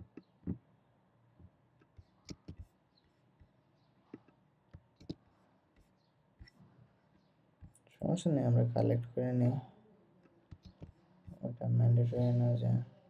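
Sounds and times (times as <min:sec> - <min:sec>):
computer mouse clicks: 0:01.8 - 0:03.2, 0:04.1 - 0:05.2, 0:10.5 - 0:10.9.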